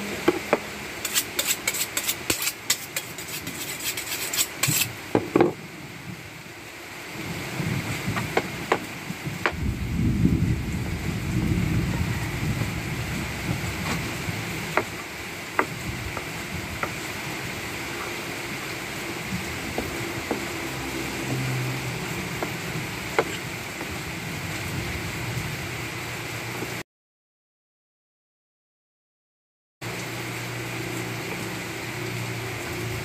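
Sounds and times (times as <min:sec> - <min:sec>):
low rumble: 0:09.4 - 0:14.7
knife chopping on wooden board: 0:19.8 - 0:20.5, 0:23.2 - 0:23.4.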